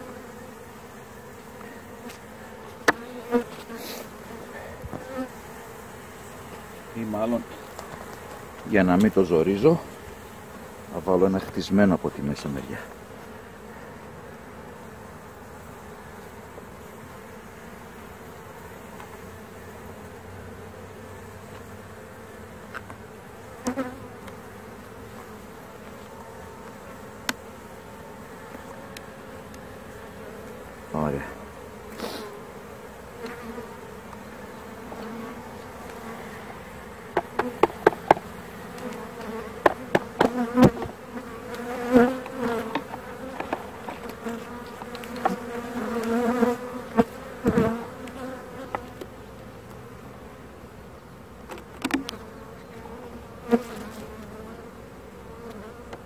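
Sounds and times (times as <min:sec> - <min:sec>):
honeybees buzzing: 0:00.0 - 0:56.0
wooden frames knocking and clicking: 0:37.2 - 0:38.3, 0:39.6 - 0:41.0, 0:42.2 - 0:44.1.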